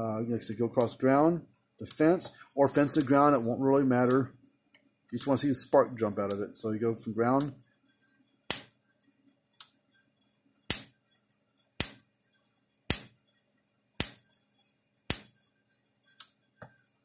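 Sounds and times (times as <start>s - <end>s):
electric fence spark snapping: 8.5s - 8.7s, 10.7s - 10.9s, 11.8s - 12.1s, 12.9s - 13.2s, 14.0s - 14.3s, 15.1s - 15.4s.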